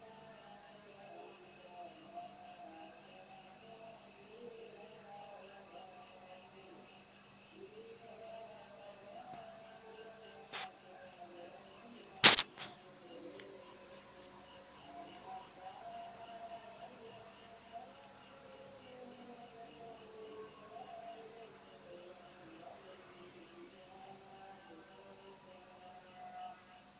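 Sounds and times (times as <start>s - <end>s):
crickets trilling: 0.0s - 26.9s
sharp loud click: 12.2s - 12.8s.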